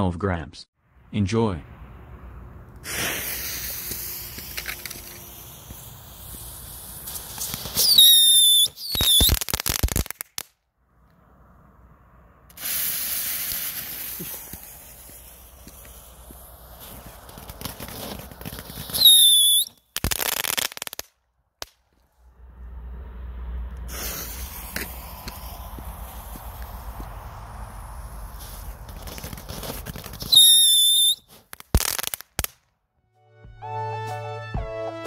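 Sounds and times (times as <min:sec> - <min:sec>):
sharp crackling pops: 0:02.7 - 0:10.6, 0:12.5 - 0:22.1, 0:23.8 - 0:32.8
fountain firework hissing: 0:02.8 - 0:10.0, 0:12.5 - 0:20.8, 0:23.9 - 0:32.4
high falling whistles: 0:07.6 - 0:09.4, 0:18.9 - 0:19.8, 0:30.2 - 0:31.3.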